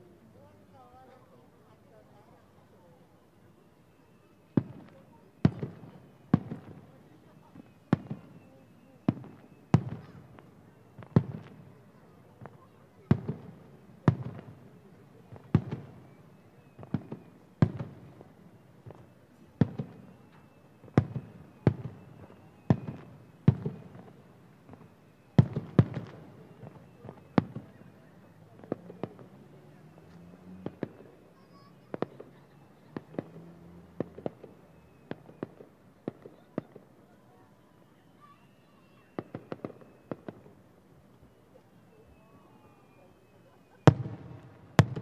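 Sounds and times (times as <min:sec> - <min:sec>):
distant firework bangs with echo: 0:04.6 - 0:11.7, 0:12.4 - 0:14.7, 0:15.3 - 0:16.1, 0:16.8 - 0:27.8, 0:30.6 - 0:31.0, 0:39.0 - 0:40.5, 0:43.8 - 0:45.0.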